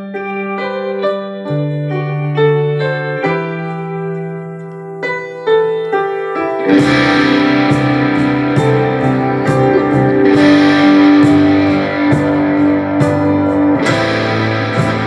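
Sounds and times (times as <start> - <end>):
keyboard notes over bass: 5.8 - 15.0
distorted electric guitar: 5.9 - 15.0
steady drum beat: 6.7 - 15.0.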